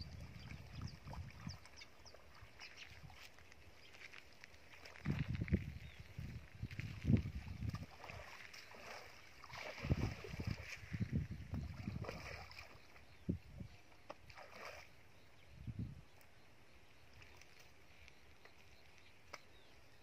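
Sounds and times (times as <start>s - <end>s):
pond water splashing: 0.0s - 15.4s.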